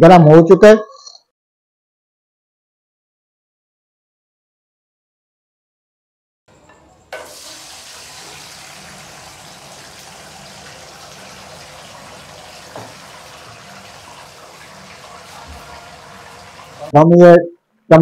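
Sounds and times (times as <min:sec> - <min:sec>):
meat sizzling in hot oil: 0:07.1 - 0:16.9.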